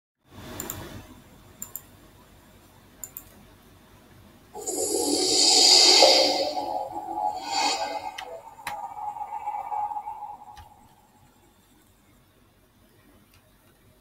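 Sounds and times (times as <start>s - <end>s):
computer mouse double-clicks: 3.0s - 3.3s
electronic music: 4.6s - 11.4s.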